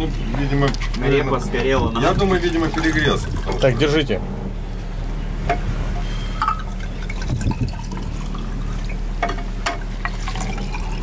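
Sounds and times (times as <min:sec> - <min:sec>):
low hum: 0:00.0 - 0:11.0
wine pouring into glasses: 0:02.4 - 0:04.0, 0:06.4 - 0:11.0.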